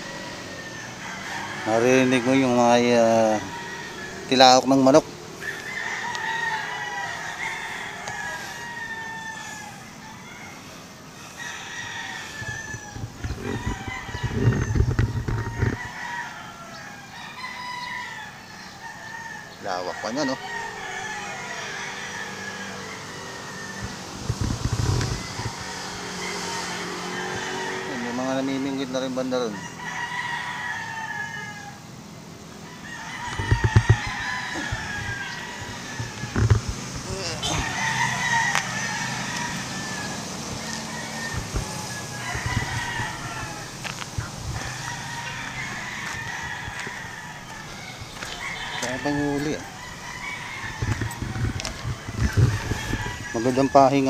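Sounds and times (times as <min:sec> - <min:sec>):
rooster crowing: 0:00.0 - 0:54.0.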